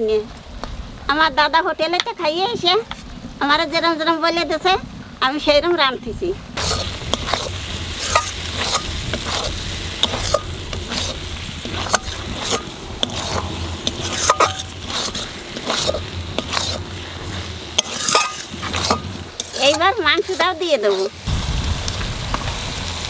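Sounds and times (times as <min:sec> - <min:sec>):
spatula scraping a metal pan: 0:06.6 - 0:21.3
mushrooms sizzling in a pan: 0:06.6 - 0:23.0.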